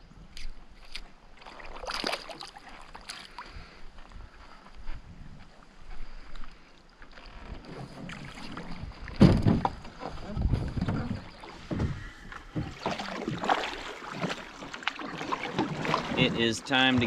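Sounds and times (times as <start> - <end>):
water splashing: 0.8 - 3.7, 7.1 - 17.0
paddle strokes: 7.0 - 17.0
heavy bump: 9.1 - 13.0.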